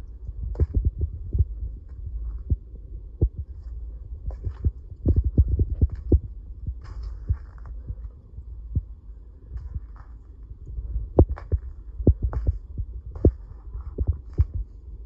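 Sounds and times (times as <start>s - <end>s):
phone handling thumps and rumble: 11.1s - 14.7s.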